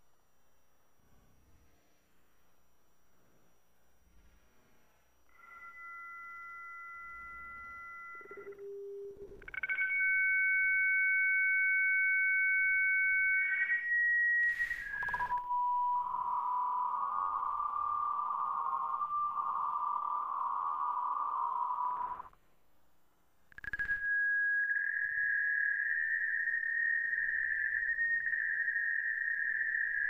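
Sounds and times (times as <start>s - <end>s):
slowed modem tones: 5.3s - 22.4s, 23.5s - 30.0s.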